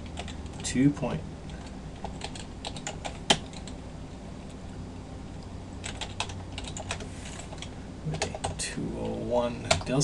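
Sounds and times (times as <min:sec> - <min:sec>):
typing on a computer keyboard: 0:01.5 - 0:03.8, 0:05.8 - 0:08.6.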